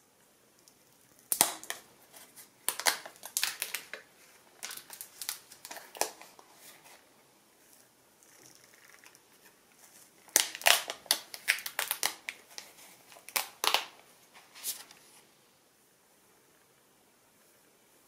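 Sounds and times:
plastic film crackling: 0:01.3 - 0:07.0, 0:10.2 - 0:14.0.

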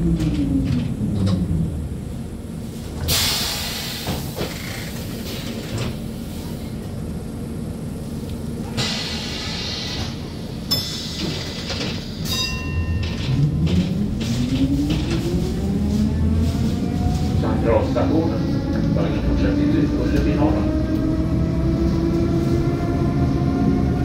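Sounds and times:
tram electrical hum: 0:00.0 - 0:24.0
tram motors whining: 0:00.0 - 0:24.0
short air hisses: 0:03.1 - 0:05.0.

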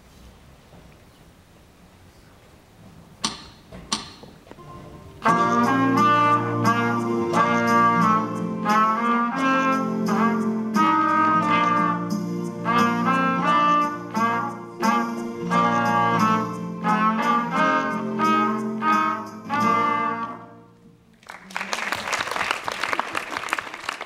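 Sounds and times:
sharp clicks: 0:03.2 - 0:04.3
school band playing: 0:04.6 - 0:20.8
trumpets playing melody: 0:04.6 - 0:20.8
drum kit beat: 0:05.1 - 0:20.2.

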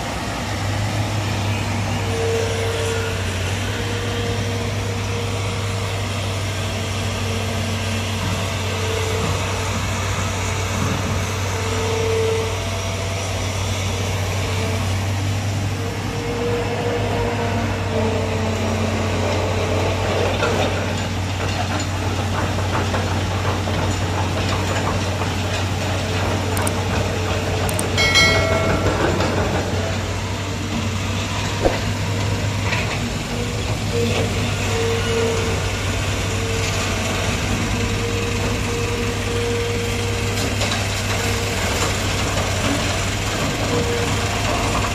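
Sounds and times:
diesel machinery engine drone: 0:00.0 - 0:44.9
sharp knock: 0:31.6 - 0:32.0.

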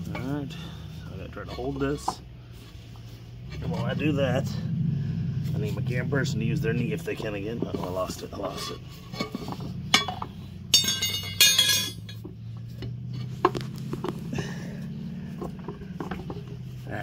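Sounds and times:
metal pry bars clanking: 0:06.6 - 0:13.6.

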